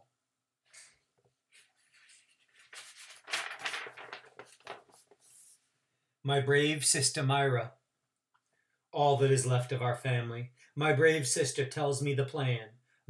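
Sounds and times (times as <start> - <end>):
book pages rustling: 0.8 - 5.7.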